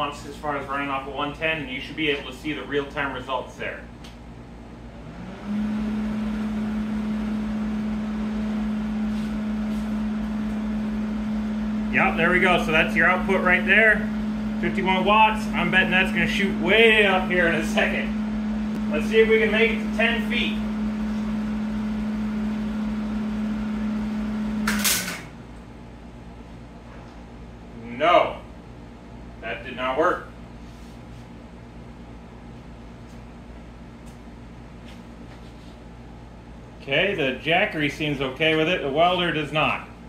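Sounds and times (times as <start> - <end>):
welder humming: 4.9 - 25.4.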